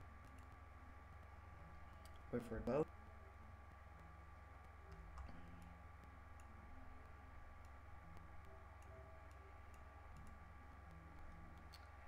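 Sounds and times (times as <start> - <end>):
low electrical hum: 0.0 - 12.0
faint clicks: 4.6 - 12.0.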